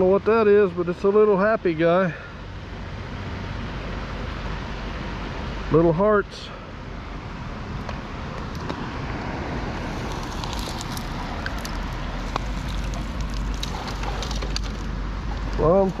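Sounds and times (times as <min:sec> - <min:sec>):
outdoor rushing noise with rumble: 0:00.0 - 0:16.0
small clicks and ticks: 0:10.0 - 0:15.5.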